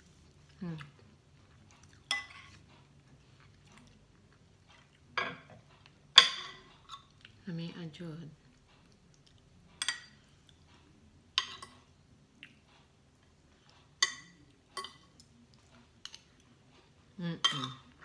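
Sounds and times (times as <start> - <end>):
cutlery clinking on ceramic plate: 5.2 - 5.6.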